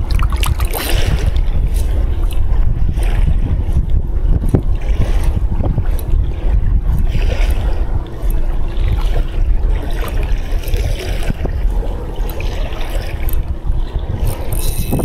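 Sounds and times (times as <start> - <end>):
water sloshing and trickling: 0.0 - 15.0
wind rumbling on microphone: 0.0 - 15.0.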